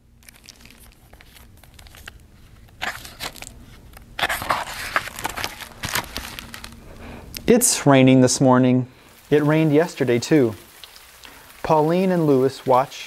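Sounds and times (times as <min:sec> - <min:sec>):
book pages turning: 0:00.2 - 0:07.5.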